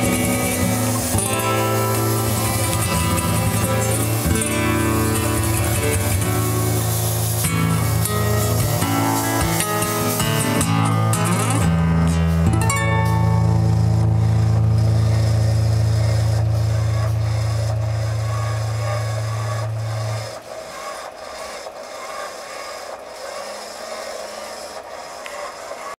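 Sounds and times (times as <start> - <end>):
steady hiss: 0.0 - 25.9
band holding low chord: 10.4 - 20.4.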